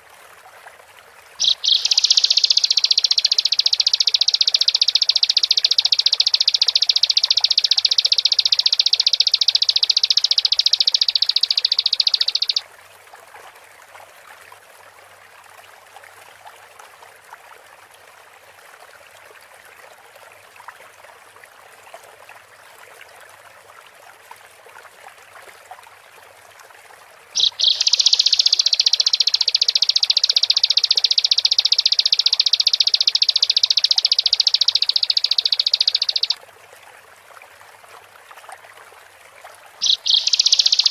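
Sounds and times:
faint running water: 0.0 - 40.9
bird high-pitched trill: 1.4 - 12.6, 27.4 - 36.4, 39.8 - 40.9.

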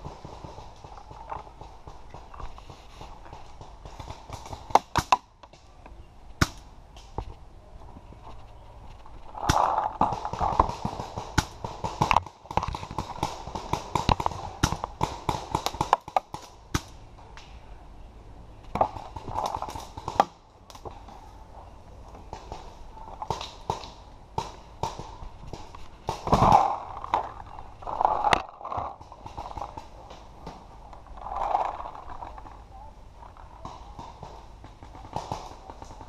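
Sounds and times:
paintball markers firing: 9.4 - 17.0.

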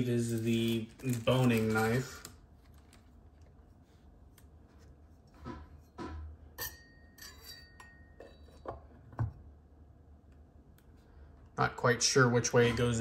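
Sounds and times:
short metallic ring: 6.6 - 8.4.

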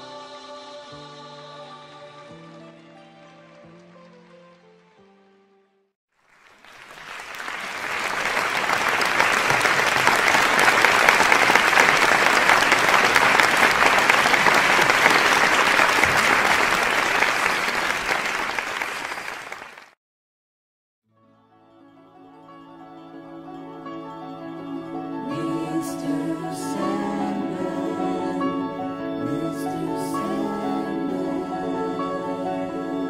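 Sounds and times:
crowd applauding: 2.4 - 5.0, 6.2 - 20.0.

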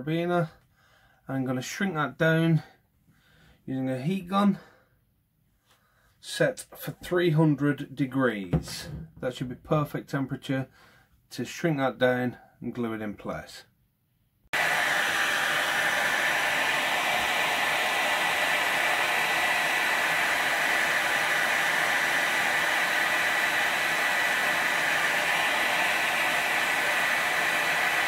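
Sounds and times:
heat gun blowing: 14.5 - 28.0.

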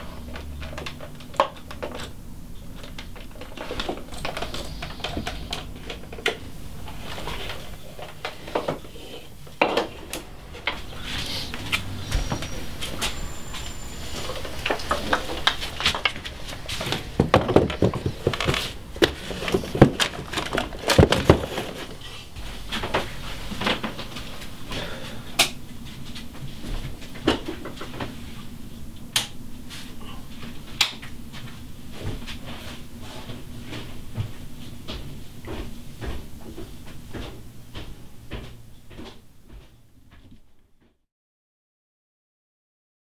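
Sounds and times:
low steady hum: 0.0 - 40.1
knocks and clicks of handling: 14.0 - 22.0.

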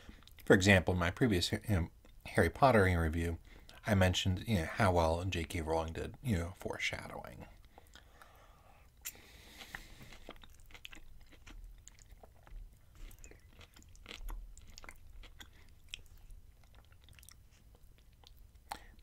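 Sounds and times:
chewing with wet mouth smacks: 9.0 - 19.0.

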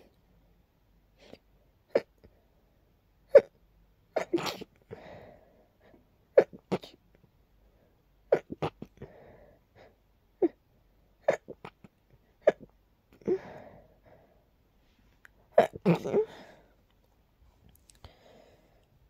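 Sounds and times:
person sneezing: 4.2 - 4.7
breathy gasps: 13.2 - 14.5, 18.0 - 18.9.

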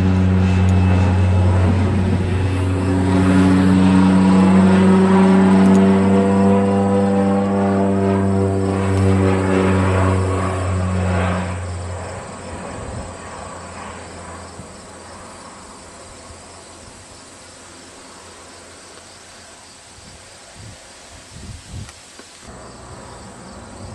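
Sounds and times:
propeller airplane drone: 0.0 - 23.9
insects chirring: 9.8 - 23.9.

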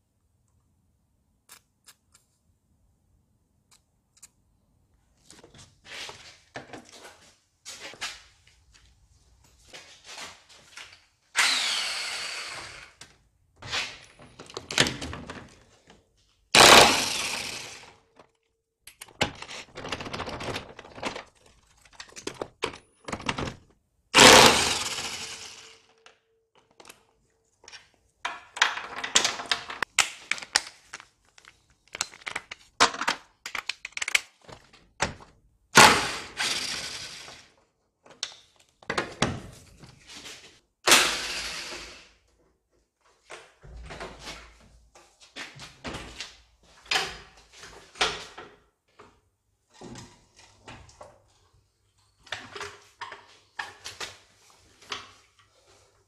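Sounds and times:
impact wrench hammering: 16.6 - 17.8, 24.2 - 25.8.

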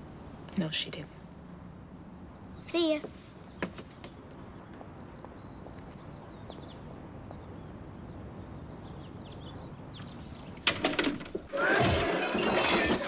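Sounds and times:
outdoor hiss: 0.0 - 11.5
small birds chirping: 0.4 - 11.6
wooden door shutting with rattle: 10.6 - 11.5
loud crash: 11.5 - 13.0.

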